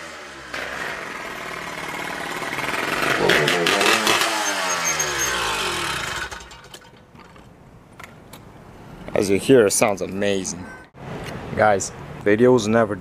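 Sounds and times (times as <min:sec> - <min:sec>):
two-stroke engine passing by: 0:00.0 - 0:06.7.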